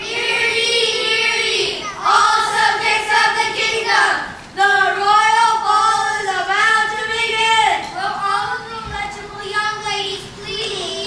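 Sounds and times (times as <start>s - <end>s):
children singing: 0.0s - 7.4s.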